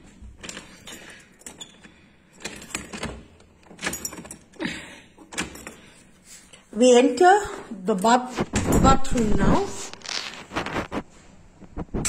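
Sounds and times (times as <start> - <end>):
keys jangling in lock: 0.4 - 4.6, 5.2 - 6.0.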